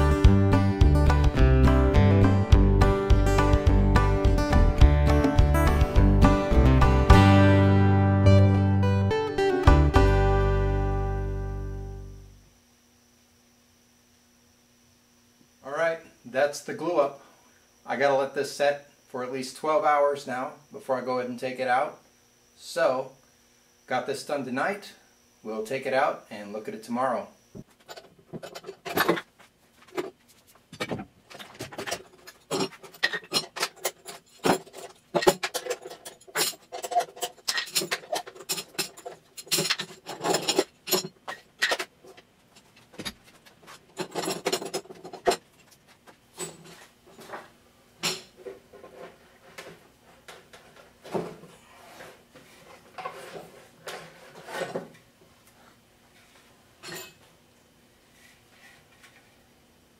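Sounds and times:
metal clamps clanking: 31.4 - 41.9.

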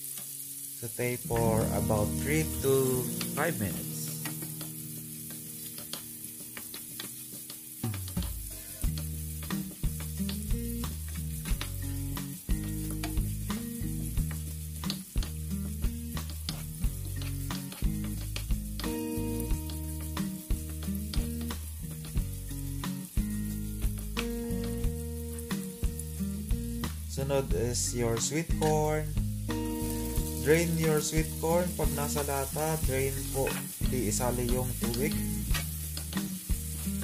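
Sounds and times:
vegetables sizzling in frying pan: 0.0 - 37.0
background music with bass: 1.3 - 4.6, 7.8 - 37.0
wooden spoon scraping pan: 16.5 - 18.5.

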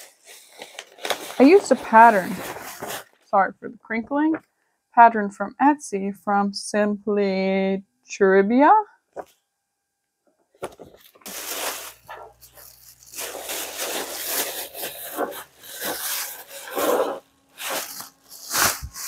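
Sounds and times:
plastic bag crinkling: 0.0 - 3.2, 10.6 - 19.0.

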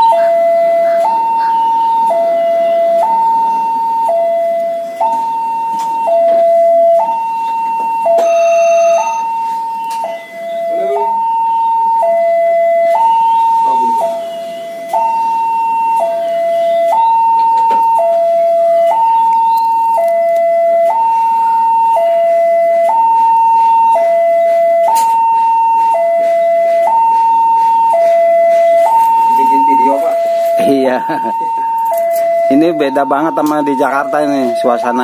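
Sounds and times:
two-tone level crossing alarm: 0.0 - 35.0.

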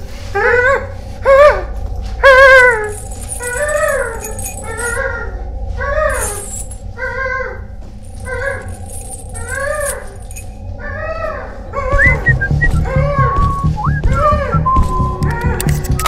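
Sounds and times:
low rumbling drone: 0.0 - 16.0
wavering wailing cries: 0.3 - 16.0
music with low beat: 11.8 - 16.0.

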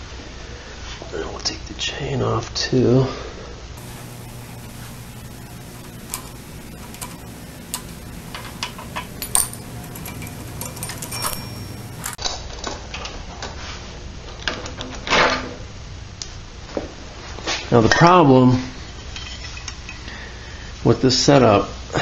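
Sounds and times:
clutch scraping clatter: 3.9 - 12.2
metal chain clinking and rattling: 5.9 - 12.2, 19.0 - 20.1.

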